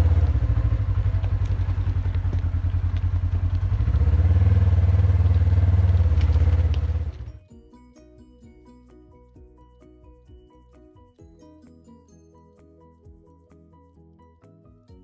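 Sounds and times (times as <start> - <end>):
atv engine running: 0.0 - 7.4.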